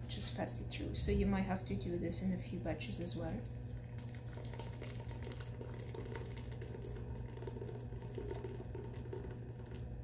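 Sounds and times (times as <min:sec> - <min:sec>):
low steady hum: 0:00.0 - 0:10.0
soup pouring into sieve: 0:03.4 - 0:10.0.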